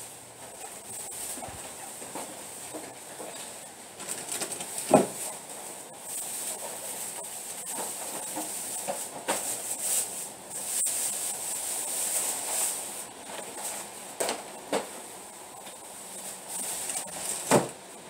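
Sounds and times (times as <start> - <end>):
items knocking and thudding: 1.0 - 5.4, 17.0 - 17.8.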